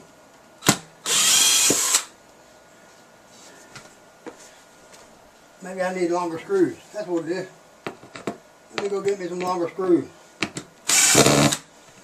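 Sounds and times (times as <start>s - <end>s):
cordless drill driving screw: 1.0s - 2.1s, 10.9s - 11.6s.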